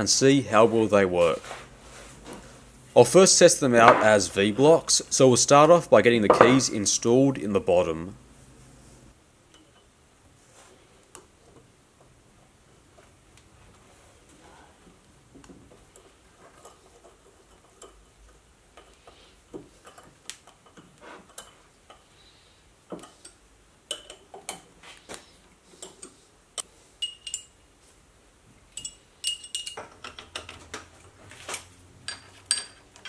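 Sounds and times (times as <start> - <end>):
small metal clicks and clinks: 28.7 - 30.6.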